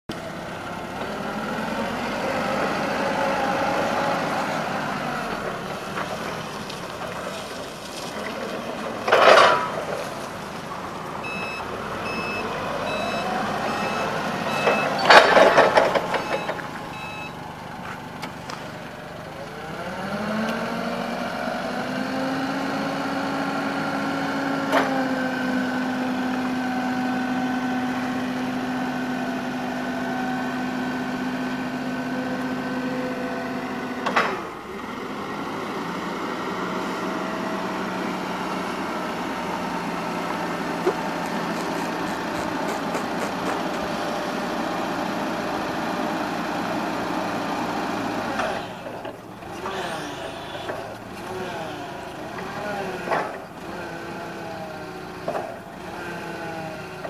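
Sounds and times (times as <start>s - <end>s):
forklift engine revving: 0.1s - 57.0s
backup alarm beeping: 11.2s - 17.4s.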